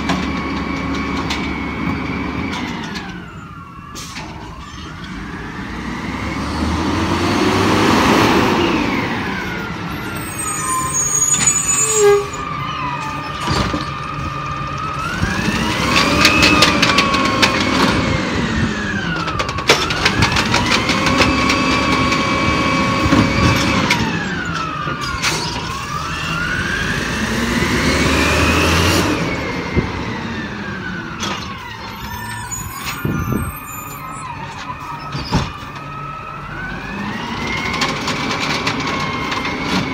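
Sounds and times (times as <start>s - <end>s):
knocks of carts being dumped: 0.0s - 5.3s, 12.4s - 26.0s, 37.0s - 39.9s
truck engine and hydraulic pump whine: 0.0s - 39.9s.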